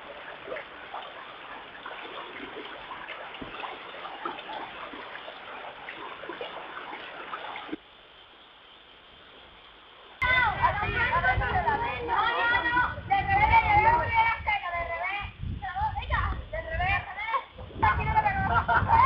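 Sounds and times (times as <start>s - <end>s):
stream water rushing: 0.0s - 8.4s.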